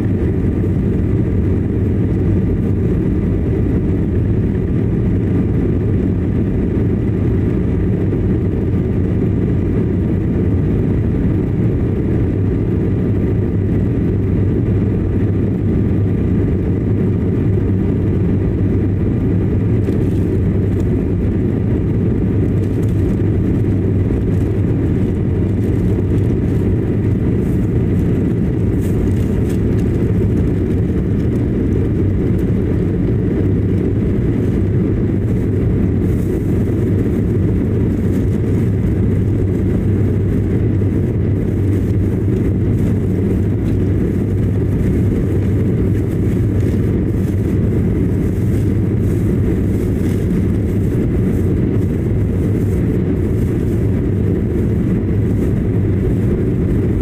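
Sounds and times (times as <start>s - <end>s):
jet engines and rushing air: 0.0s - 57.0s.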